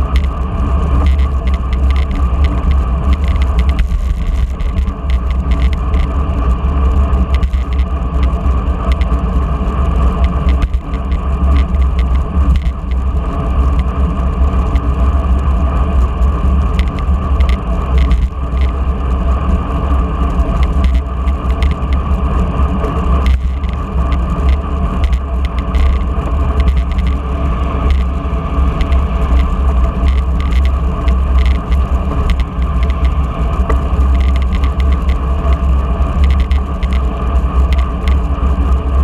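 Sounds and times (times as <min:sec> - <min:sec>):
deep road rumble: 0:00.0 - 0:39.0
wind rushing over microphone: 0:00.0 - 0:39.0.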